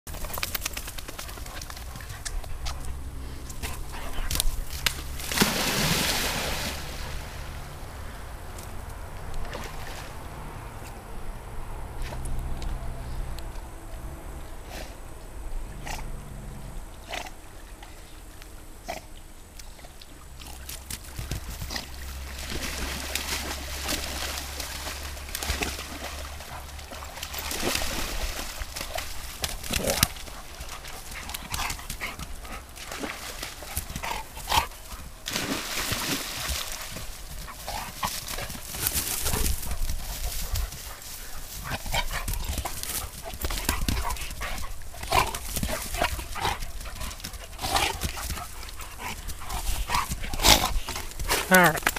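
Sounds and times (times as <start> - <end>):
dog noises: 0.1 - 5.2, 37.3 - 51.9
dogs splashing through water: 0.1 - 11.0, 19.7 - 51.9.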